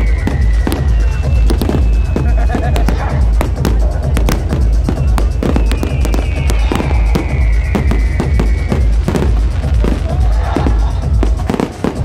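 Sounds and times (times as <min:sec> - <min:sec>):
electronic dance music: 0:00.0 - 0:12.0
fireworks crackling and popping: 0:00.0 - 0:12.0
high whistle sliding down: 0:05.5 - 0:09.0.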